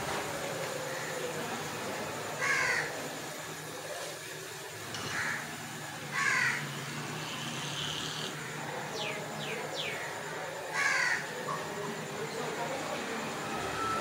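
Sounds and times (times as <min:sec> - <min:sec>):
crows cawing: 0:02.4 - 0:03.1, 0:05.0 - 0:09.1, 0:09.8 - 0:11.4.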